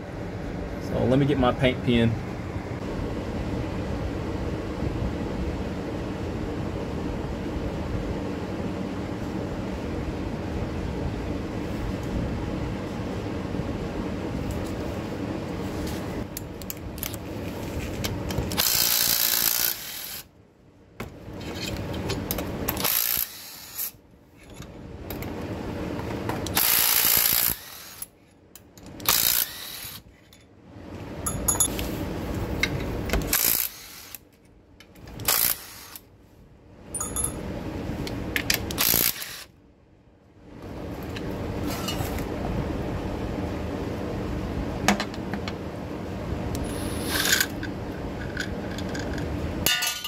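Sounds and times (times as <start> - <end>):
ratchet clicking: 18.5 - 20.2, 26.5 - 28.1, 29.0 - 30.0, 33.3 - 34.2.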